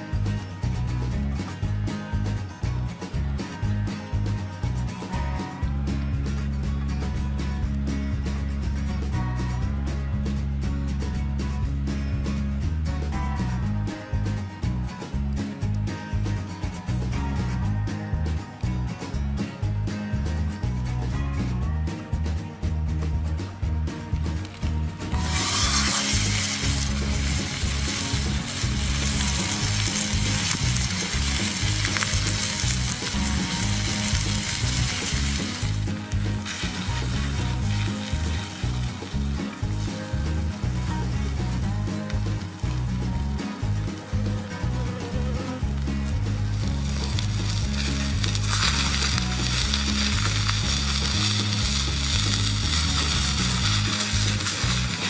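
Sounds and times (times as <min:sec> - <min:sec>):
background music beat: 0:00.0 - 0:55.0
steak sizzling in a skillet: 0:25.2 - 0:40.7, 0:46.4 - 0:55.0.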